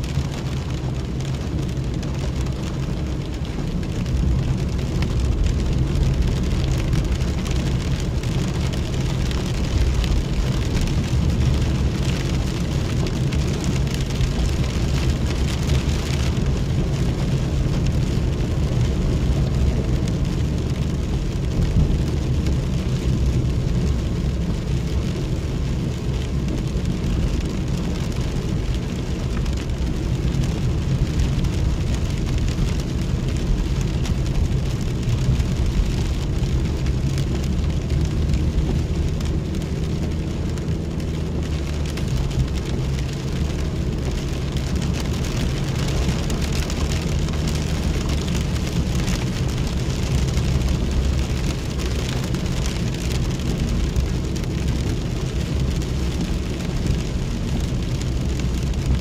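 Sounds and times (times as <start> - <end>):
engine and road hum: 0.0 - 59.0
rain on a vehicle: 0.0 - 59.0.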